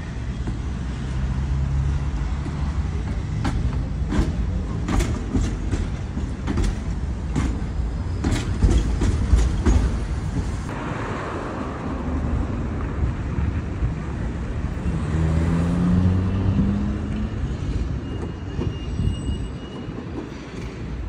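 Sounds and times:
tram wheels knocking on rail joints: 1.9s - 10.7s.

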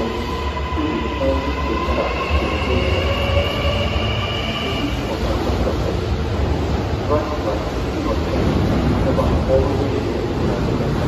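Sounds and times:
high steady whining tones: 0.0s - 6.1s
train running rumble: 0.0s - 11.0s.

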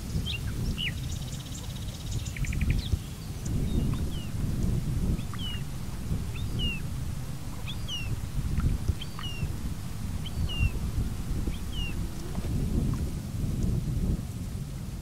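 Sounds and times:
wind buffeting microphone: 2.4s - 15.0s
high downward-slurred bird calls: 3.5s - 13.5s.

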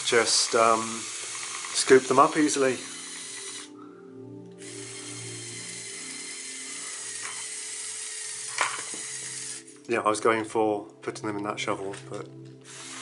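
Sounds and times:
toy electric motors whirring: 0.0s - 3.7s, 4.6s - 9.7s, 12.7s - 13.0s.

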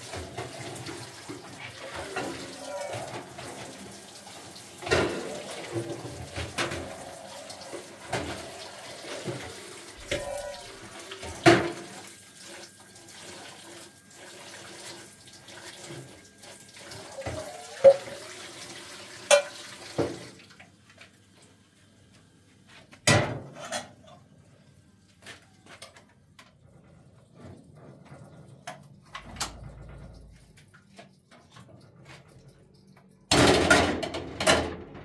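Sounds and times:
tap water running: 0.0s - 21.6s, 25.8s - 35.0s
metal dishes clanking: 1.6s - 3.8s, 4.8s - 11.9s.

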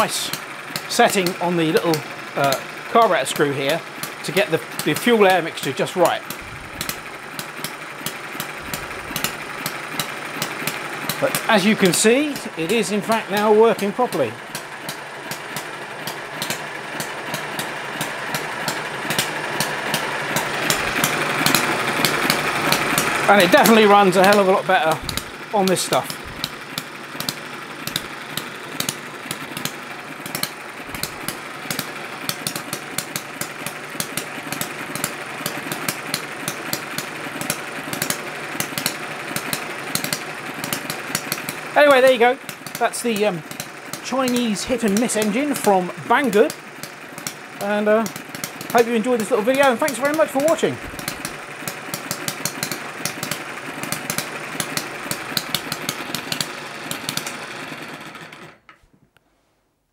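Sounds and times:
engine firing pops: 4.0s - 47.4s, 48.1s - 57.4s
mechanical whirr: 5.9s - 7.8s, 8.4s - 12.8s, 14.5s - 32.7s.

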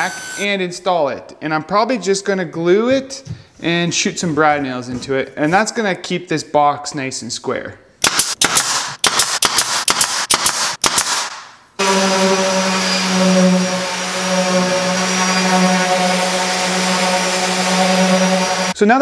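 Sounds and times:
nail gun firing: 8.0s - 11.5s
orbital sander humming: 11.8s - 18.8s.

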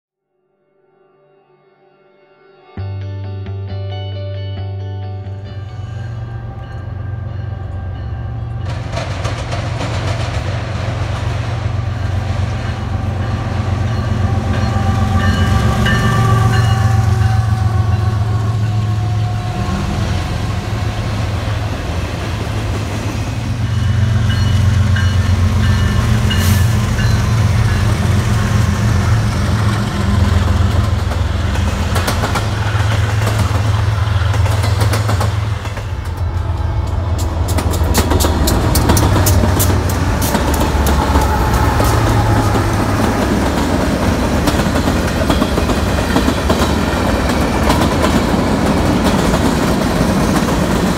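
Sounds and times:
freight train rumbling past: 5.2s - 50.9s
wheels clicking over rail joints: 29.7s - 50.9s.

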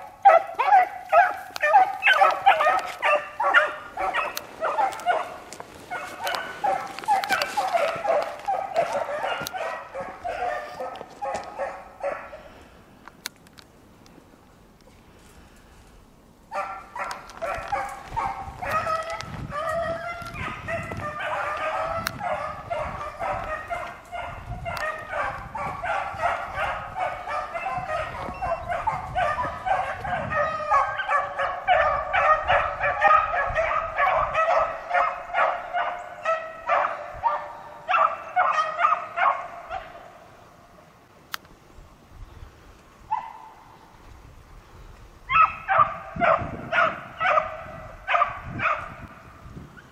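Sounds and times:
hounds baying: 0.0s - 12.6s, 16.5s - 40.3s, 45.3s - 49.0s.

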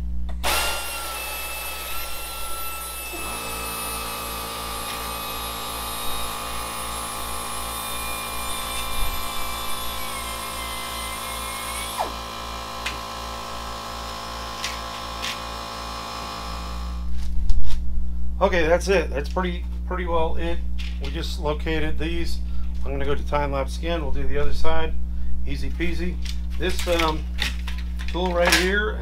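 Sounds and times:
power drill whining: 0.4s - 17.1s.

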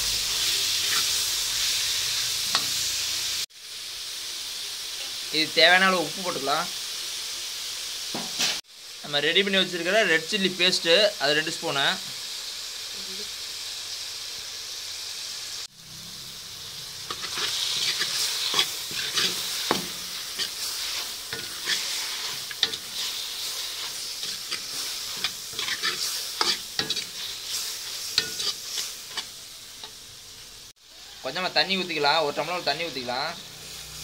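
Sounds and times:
food sizzling in a pan: 0.0s - 34.0s
ladle scraping a pan: 17.0s - 29.3s.

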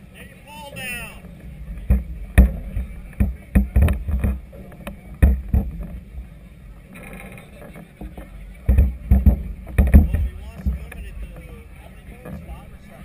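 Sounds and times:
wind rumbling on camera: 1.2s - 13.0s
knocks and thumps: 1.8s - 6.0s, 8.0s - 11.4s.

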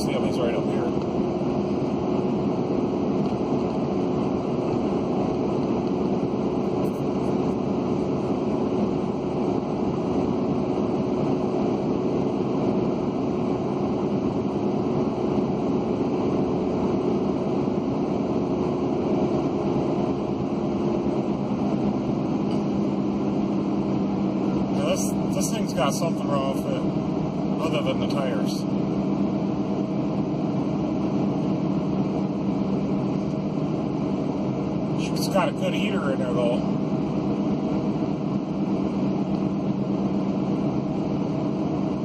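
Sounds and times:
tire and road noise: 0.0s - 42.0s.

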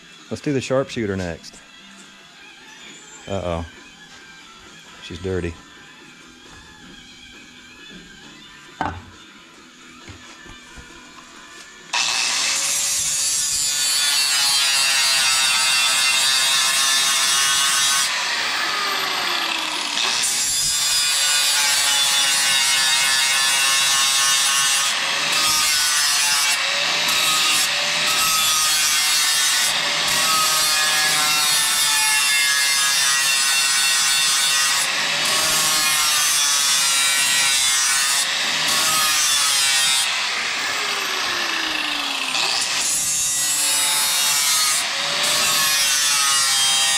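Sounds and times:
angle grinder grinding steel: 11.9s - 46.9s.

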